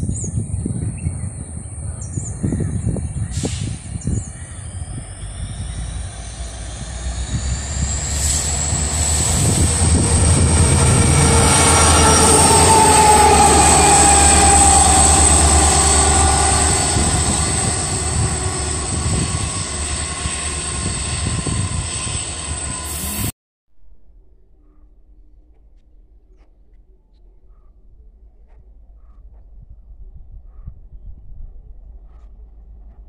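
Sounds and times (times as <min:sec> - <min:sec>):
locomotive engine rumble: 0:00.7 - 0:23.3
high whine: 0:03.6 - 0:23.3.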